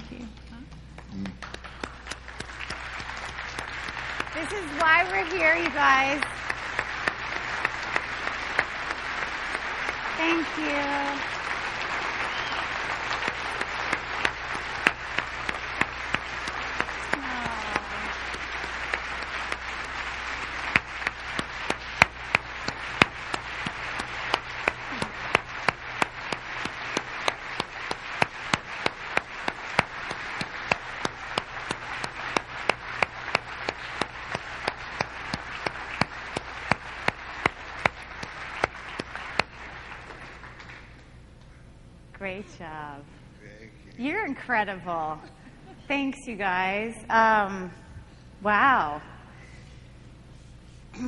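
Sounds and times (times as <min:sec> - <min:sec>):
sharp claps of one person: 0:00.7 - 0:41.1
audience applauding: 0:01.0 - 0:41.1.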